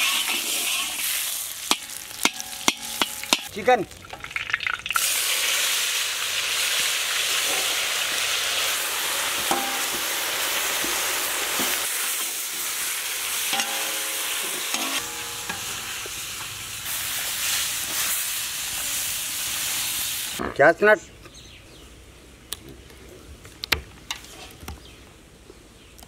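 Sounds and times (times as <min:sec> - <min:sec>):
metal spatula scraping pan: 0:00.0 - 0:03.5, 0:13.5 - 0:16.0
chicken sizzling in butter: 0:00.0 - 0:20.4.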